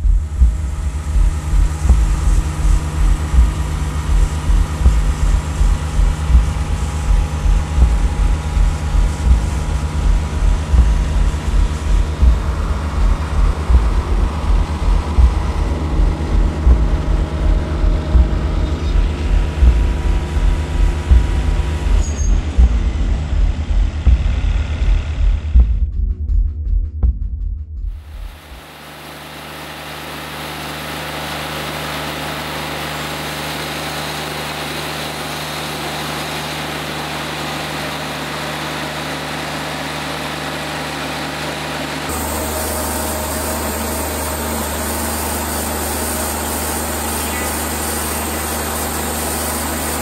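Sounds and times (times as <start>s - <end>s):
pulsing low beat: 0.0s - 28.8s, 42.1s - 50.0s
bandsaw mill sawing log: 28.7s - 50.0s.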